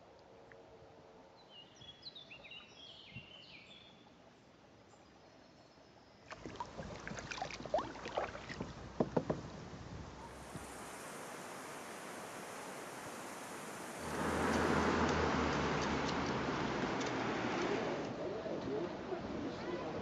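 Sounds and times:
water splashing around a kayak: 6.3s - 18.2s.

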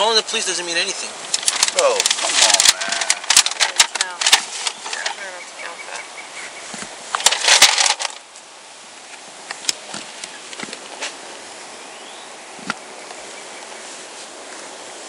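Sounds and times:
steady outdoor hiss: 0.0s - 15.0s
clatter and rustle burst: 1.3s - 5.3s, 7.1s - 8.3s.

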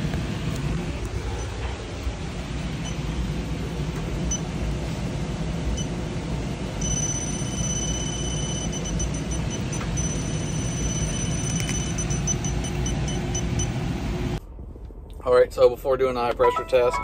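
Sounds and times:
leak detector beeping: 6.8s - 13.8s
steady high alarm tone: 6.8s - 13.8s, 16.4s - 17.0s.

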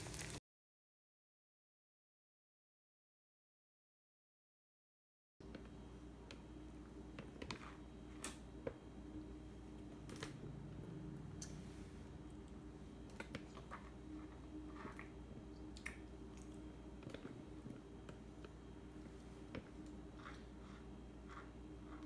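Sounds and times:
low room hum: 5.4s - 22.0s.

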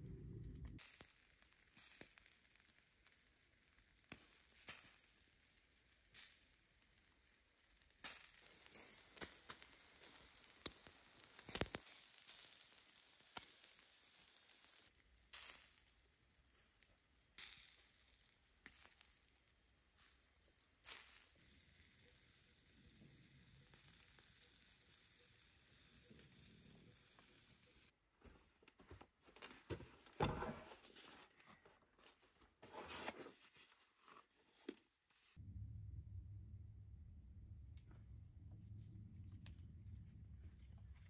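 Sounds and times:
charcoal popping and crackling: 0.5s - 28.0s
steak sizzling over charcoal: 5.8s - 27.9s.

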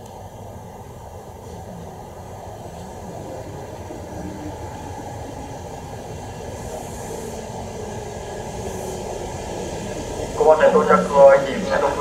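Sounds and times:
electric train rumbling: 0.0s - 12.0s.

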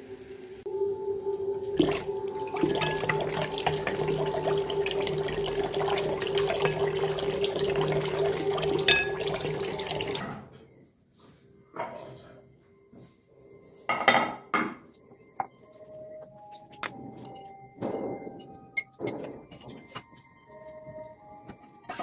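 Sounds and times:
tap water running into bowl: 1.7s - 10.3s.

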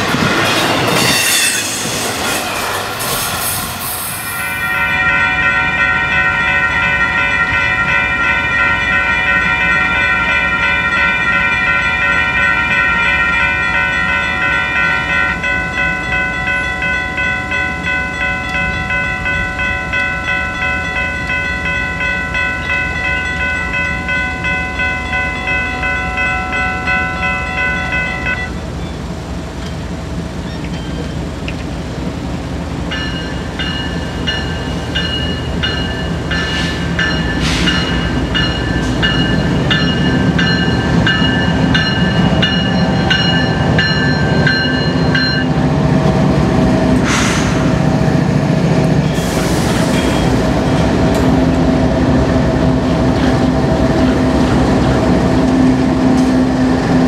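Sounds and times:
diesel locomotive rumble: 0.0s - 57.0s
crossing warning bell ringing: 4.1s - 31.3s, 32.7s - 57.0s
higher bell ringing: 4.3s - 29.0s, 32.9s - 46.7s.

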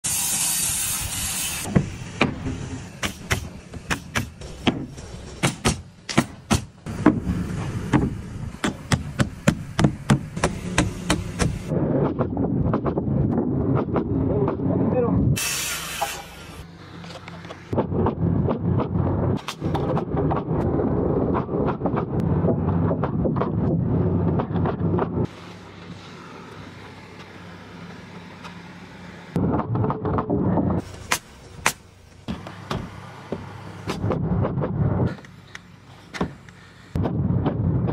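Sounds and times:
loud hiss: 0.0s - 3.6s, 15.4s - 16.6s
low hum: 6.8s - 37.9s.

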